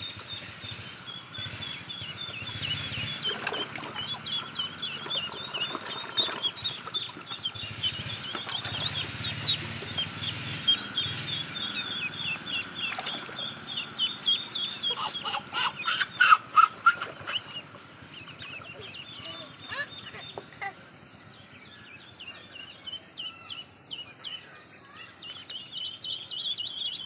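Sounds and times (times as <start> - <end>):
ducklings peeping: 0.0 - 27.0
water splashing in plastic basin: 2.6 - 10.8, 12.6 - 13.9
toddler laughing: 14.7 - 17.6, 18.7 - 20.9.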